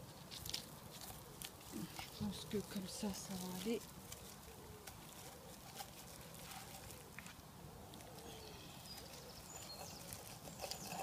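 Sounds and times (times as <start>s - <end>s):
low steady outdoor haze: 0.0s - 11.0s
faint high chirps: 8.0s - 11.0s.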